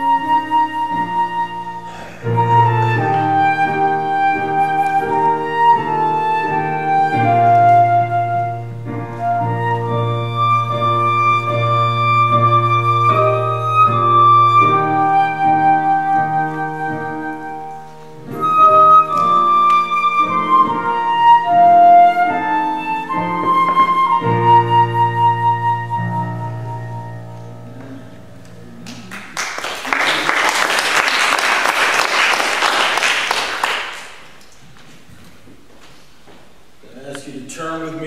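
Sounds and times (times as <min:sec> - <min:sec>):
flute and piano hymn: 0:00.0 - 0:34.4
applause: 0:28.8 - 0:34.5.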